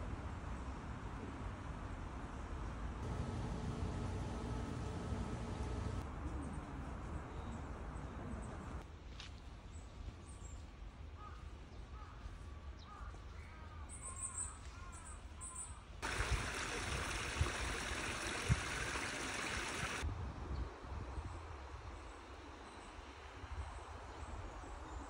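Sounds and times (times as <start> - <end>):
water pouring through sluice: 16.0 - 20.0.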